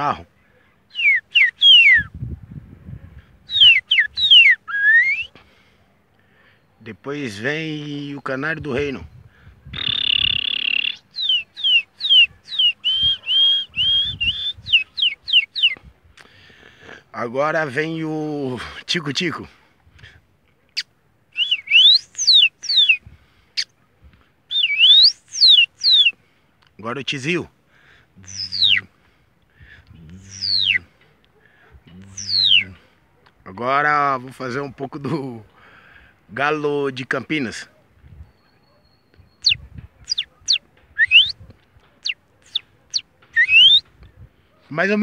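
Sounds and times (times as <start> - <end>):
man whistling bird song: 0.9 - 2.2, 3.5 - 5.4, 9.1 - 15.8, 21.3 - 23.0, 24.5 - 26.2, 28.2 - 28.9, 30.2 - 30.8, 32.0 - 32.8, 38.2 - 41.4, 42.0 - 43.9.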